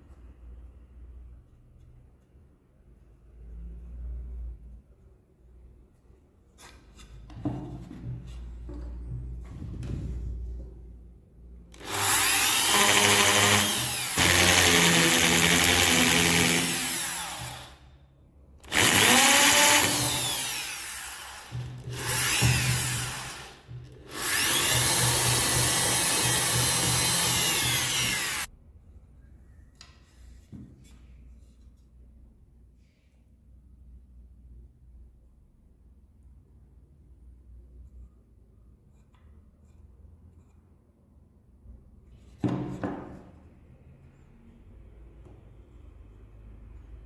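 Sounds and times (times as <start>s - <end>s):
electric drill boring into wood: 11.8s - 17.8s, 18.6s - 28.5s.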